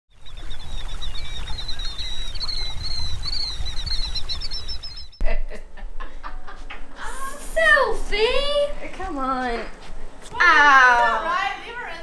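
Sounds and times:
birds chirping: 0.1s - 5.2s
low rumble of wind or water: 0.1s - 5.2s.

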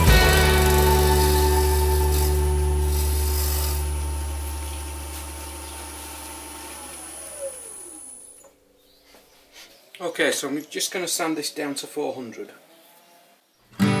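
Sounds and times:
wood lathe motor hum and whine: 0.0s - 8.6s.

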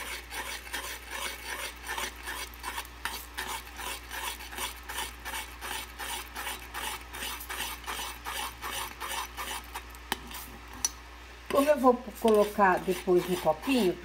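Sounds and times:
spoon scraping metal saucepan: 11.5s - 14.0s.

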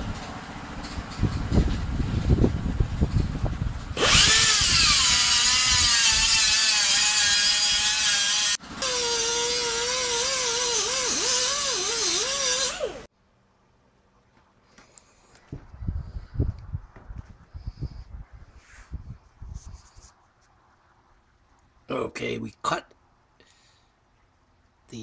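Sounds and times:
angle grinder cutting steel: 4.0s - 13.1s.

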